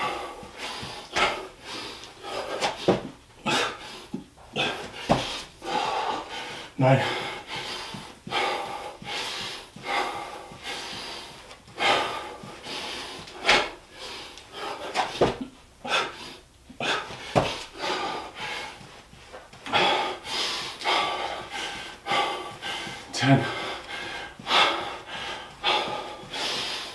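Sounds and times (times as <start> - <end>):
man panting: 0.0 - 26.9
dull thuds on floor: 2.6 - 3.2, 4.9 - 5.4, 15.0 - 15.6, 17.1 - 17.7.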